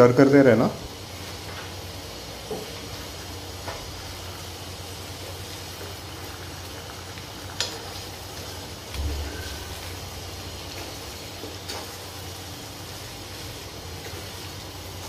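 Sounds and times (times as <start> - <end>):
chicken sizzling in a pan: 0.0 - 15.0
low thump: 9.0 - 9.9.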